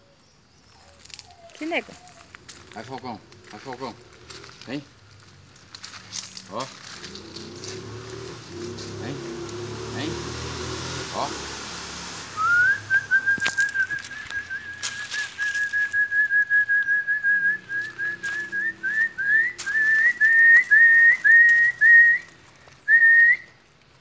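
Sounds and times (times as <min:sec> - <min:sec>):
person whistling: 0:12.4 - 0:22.3, 0:22.9 - 0:23.6.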